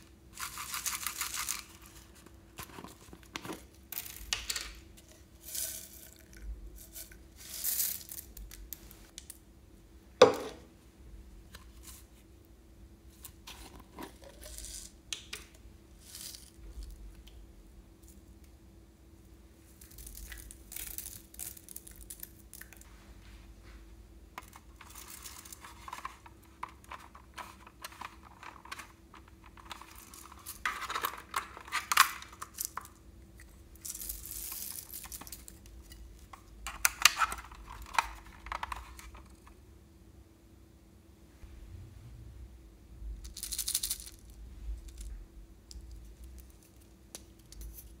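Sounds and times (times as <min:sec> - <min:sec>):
faint steady hum: 0:00.0 - 0:48.0
plastic sequins rustling: 0:00.3 - 0:09.1, 0:33.8 - 0:35.6.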